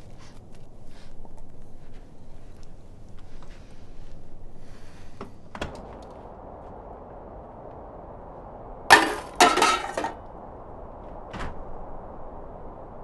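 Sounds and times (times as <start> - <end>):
tin can crashing onto cans: 8.9 - 10.2
tin cans clattering: 8.9 - 10.2.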